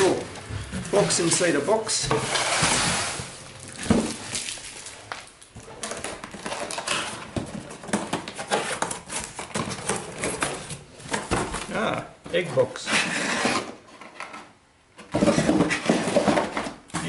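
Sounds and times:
box sliding out of carton: 0:02.1 - 0:03.4, 0:12.9 - 0:13.8.

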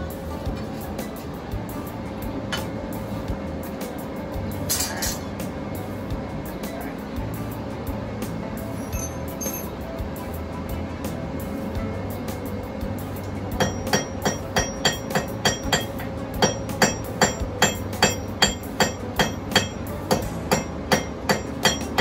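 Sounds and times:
hammer striking metal on anvil: 0:08.8 - 0:09.8, 0:13.6 - 0:22.0.

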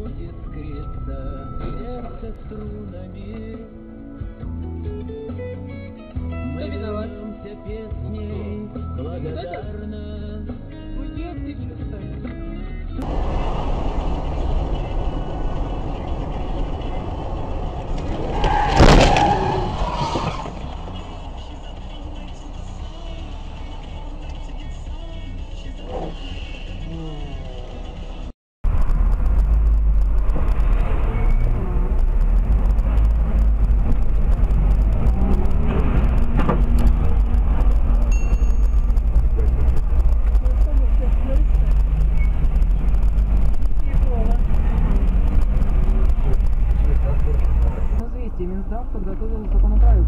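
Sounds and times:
car driving in traffic: 0:13.0 - 0:50.0
sudden loud bang: 0:17.9 - 0:21.6
brief high tone: 0:38.1 - 0:39.1.

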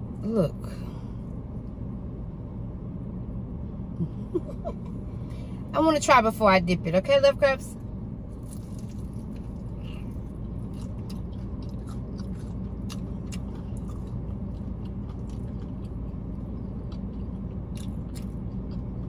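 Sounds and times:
steady low hum: 0:00.0 - 0:19.0
crunchy chewing of fried chicken: 0:08.3 - 0:19.0.

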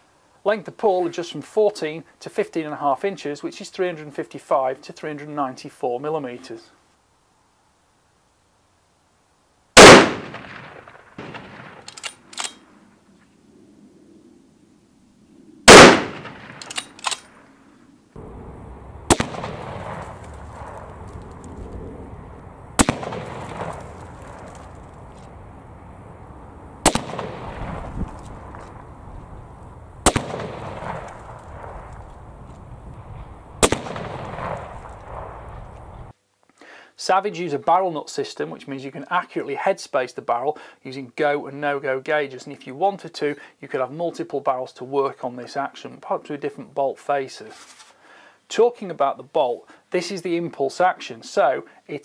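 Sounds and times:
outdoor background noise: 0:00.0 - 0:52.0
rifle shot cracks: 0:09.8 - 0:12.6, 0:15.7 - 0:17.3, 0:18.2 - 0:36.0
metallic rifle bolt clicks: 0:11.2 - 0:12.7, 0:15.8 - 0:17.4.

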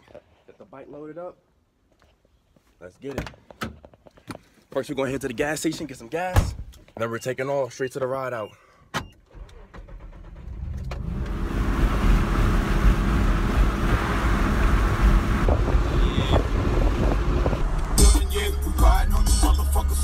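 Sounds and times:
vehicle engine: 0:10.0 - 0:18.5
road noise: 0:10.0 - 0:19.0.

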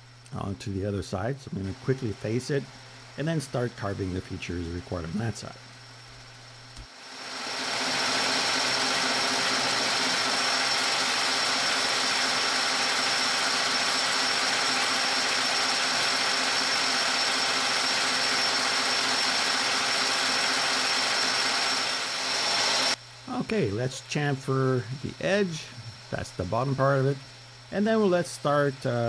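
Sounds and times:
metal lathe whirring with high whine: 0:06.8 - 0:29.0.

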